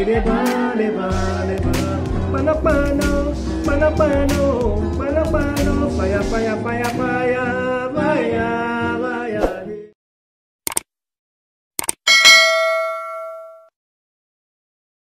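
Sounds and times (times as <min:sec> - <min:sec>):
person singing: 0:00.0 - 0:10.0
short clicks: 0:10.7 - 0:10.9, 0:11.8 - 0:12.0
bright bell ding: 0:12.1 - 0:13.7.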